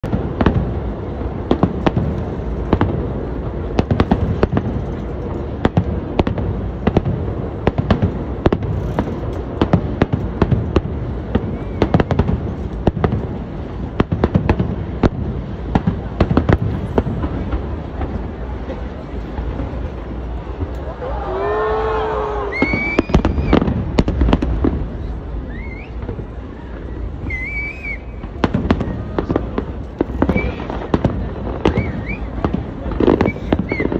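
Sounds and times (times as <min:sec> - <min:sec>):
fireworks cracks and booms: 0:00.0 - 0:33.9.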